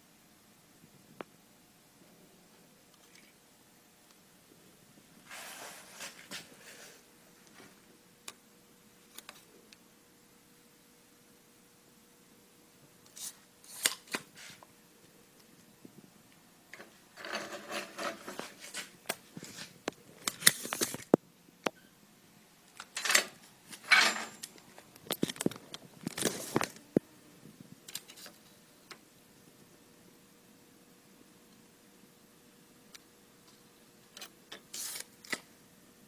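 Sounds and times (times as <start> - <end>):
faint steady hum: 0.0 - 36.0
metal tools scraping and clicking: 23.0 - 24.6.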